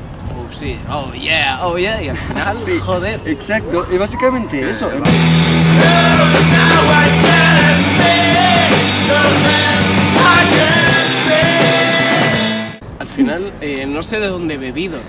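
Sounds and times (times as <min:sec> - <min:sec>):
indie rock band playing: 0:05.0 - 0:12.8
man singing: 0:05.0 - 0:12.8
drums: 0:05.0 - 0:13.0
electric bass: 0:05.0 - 0:13.0.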